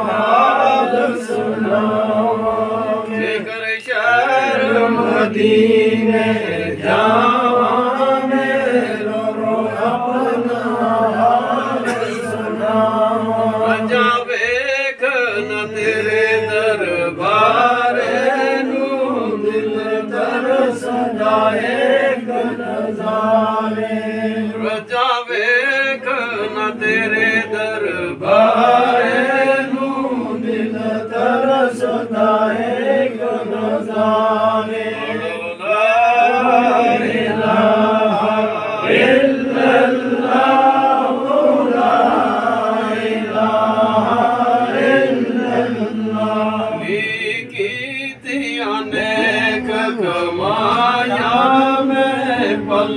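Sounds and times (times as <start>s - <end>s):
men chanting together: 0.0s - 52.9s.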